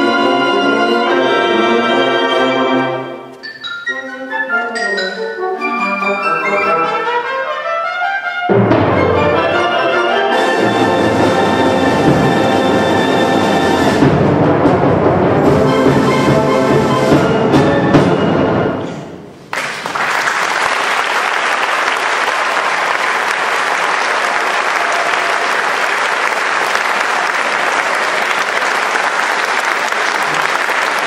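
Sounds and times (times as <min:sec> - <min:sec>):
audience applause: 0:19.5 - 0:31.0.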